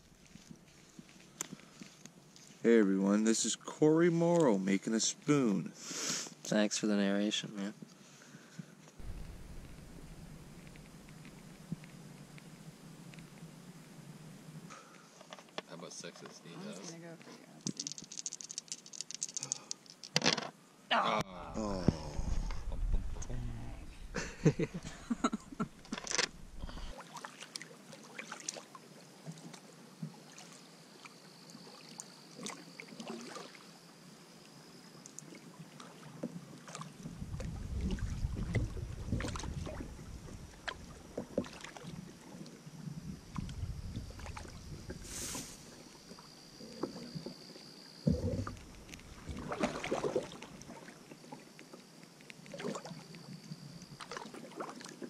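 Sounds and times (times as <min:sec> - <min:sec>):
paddle knocking against hull: 0:09.0 - 0:11.8, 0:48.1 - 0:50.3
paddle strokes in water: 0:09.0 - 0:13.4, 0:25.6 - 0:30.7, 0:35.2 - 0:47.4, 0:48.1 - 0:51.8, 0:54.0 - 0:55.0
water splashes: 0:09.0 - 0:13.5, 0:21.7 - 0:33.7, 0:35.1 - 0:47.2, 0:48.1 - 0:51.5, 0:52.5 - 0:53.1, 0:54.0 - 0:55.0.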